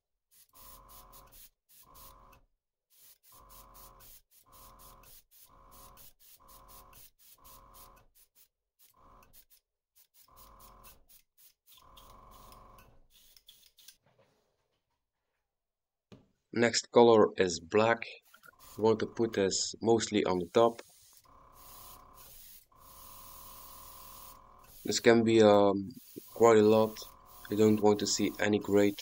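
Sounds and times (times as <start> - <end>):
airbrush spraying hiss: 0.3 - 2.2, 2.9 - 12.5, 13.1 - 13.9, 18.3 - 19.2, 20.3 - 25.2, 25.9 - 29.0.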